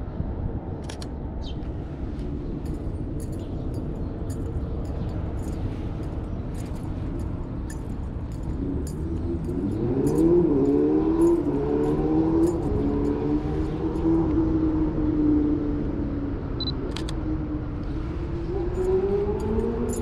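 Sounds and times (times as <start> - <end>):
road traffic rumble: 0.0 - 20.0
metallic jingling with footsteps: 2.5 - 14.2, 18.6 - 20.0
vehicle engine speeding up: 8.3 - 15.8.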